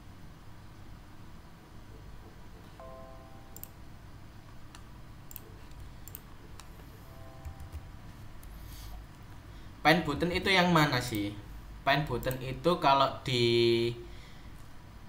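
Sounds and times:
soft multi-note tone: 2.8s - 3.9s, 6.9s - 8.3s
computer mouse clicks: 3.5s - 3.8s, 4.7s - 6.8s.

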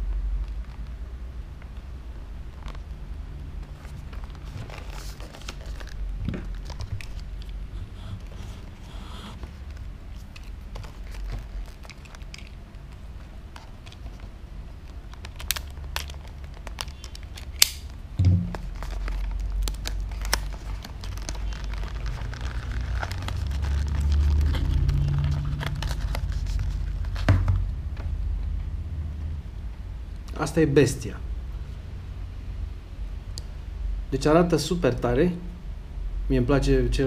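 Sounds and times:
plastic crinkling: 2.4s - 27.3s
low handling rumble: 18.2s - 19.7s.

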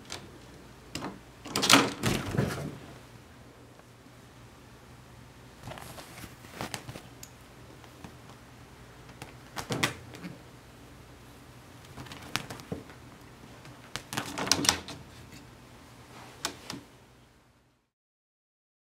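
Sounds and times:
kitten claws scrabbling on screen: 9.1s - 10.4s, 11.8s - 13.0s, 13.7s - 14.9s.

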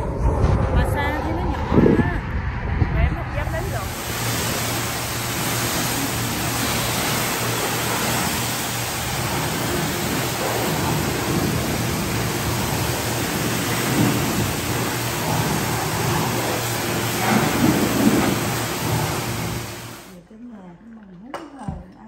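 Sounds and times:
high-pressure water spray on car: 3.4s - 20.2s.

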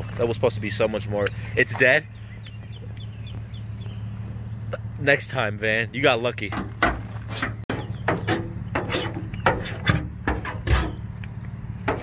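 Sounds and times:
saw blade scraping metal: 7.1s - 11.0s.

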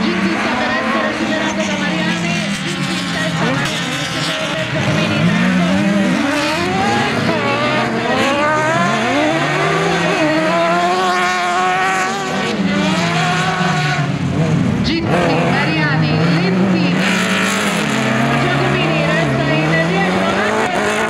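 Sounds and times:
buggy engines revving: 0.0s - 21.0s.

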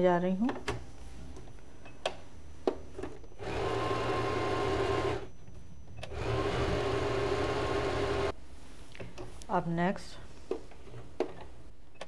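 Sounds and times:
electric sewing machine running: 3.4s - 5.3s, 6.1s - 8.3s.

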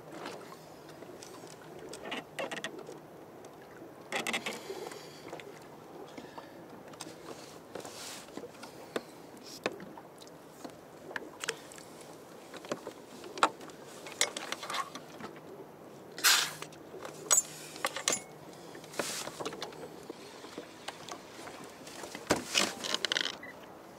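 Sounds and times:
fishing gear clicks and knocks: 12.5s - 15.4s, 16.6s - 19.9s, 20.9s - 23.5s.

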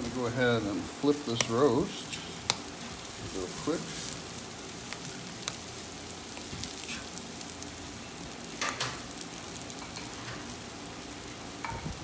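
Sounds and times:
food sizzling on a grill: 0.0s - 12.0s
small crackles: 0.8s - 12.0s.

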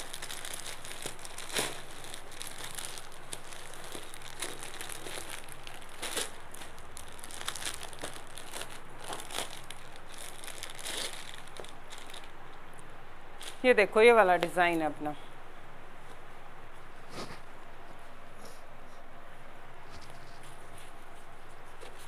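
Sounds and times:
plastic packets crinkling: 0.0s - 12.6s.

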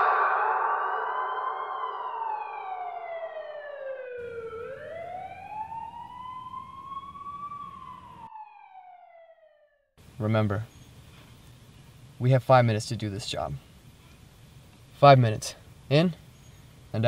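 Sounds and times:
emergency vehicle siren wailing: 0.0s - 9.9s
faint low background noise: 10.0s - 17.0s.

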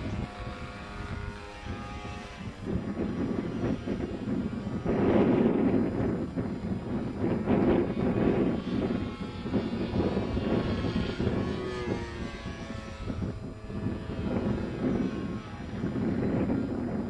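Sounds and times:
propeller plane flying overhead: 0.0s - 17.0s.

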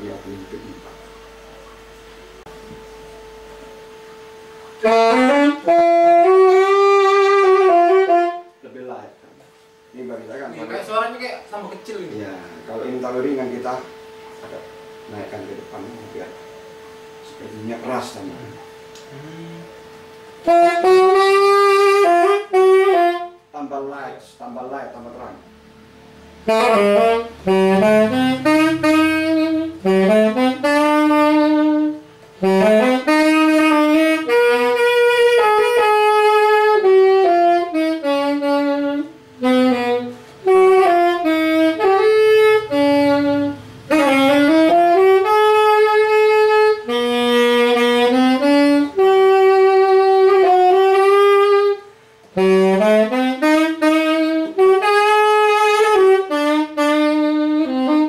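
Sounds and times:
alto saxophone solo: 2.3s - 8.7s, 18.7s - 23.5s, 26.3s - 58.0s.

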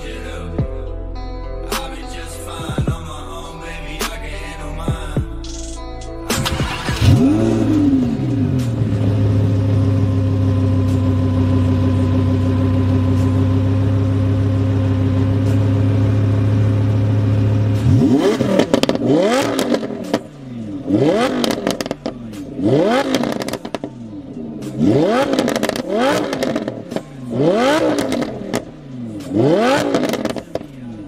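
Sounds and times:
car engine idling: 2.2s - 31.0s
engine revving in throttle blips: 6.3s - 31.0s
exhaust crackles and pops: 17.8s - 20.3s, 21.0s - 24.0s, 24.6s - 27.0s, 27.6s - 30.7s.

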